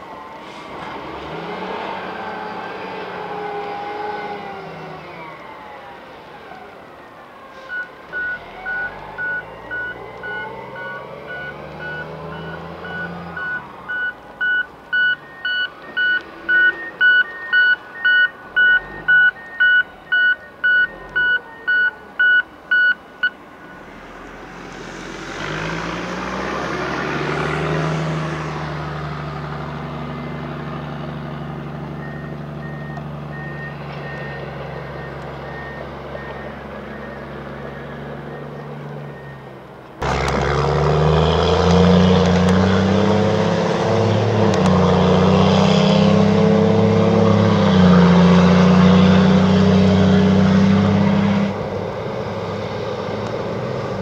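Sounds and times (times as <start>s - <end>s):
diesel engines droning: 0.0s - 54.0s
reversing alarm beeping: 7.7s - 23.8s, 31.9s - 39.6s.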